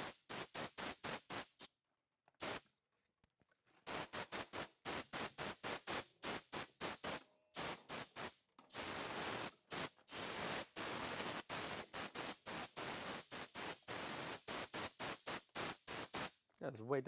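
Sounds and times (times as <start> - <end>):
compressed air blow gun hissing: 0.0 - 1.7, 2.4 - 2.6, 3.9 - 16.4.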